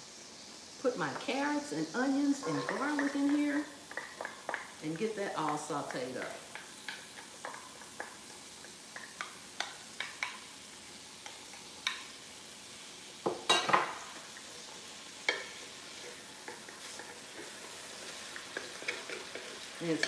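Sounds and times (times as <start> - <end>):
carrots sizzling in fat: 0.0 - 20.0
wooden spatula scraping pan: 2.4 - 4.6.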